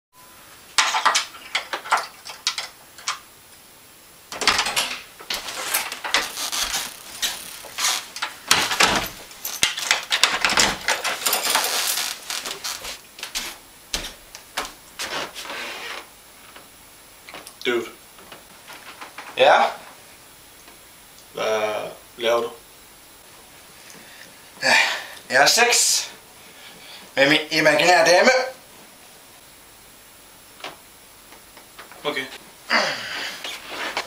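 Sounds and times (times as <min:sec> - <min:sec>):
wooden door opening: 0:04.3 - 0:12.9
knocks and clatter of movement: 0:04.3 - 0:13.4
shuffling: 0:11.0 - 0:15.8, 0:33.2 - 0:34.0.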